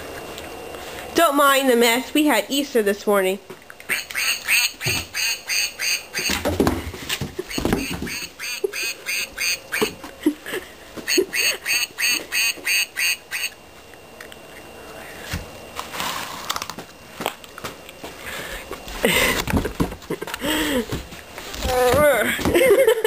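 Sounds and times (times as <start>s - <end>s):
plush toy duck quacking: 3.9s - 6.4s, 7.8s - 9.9s, 11.1s - 13.6s.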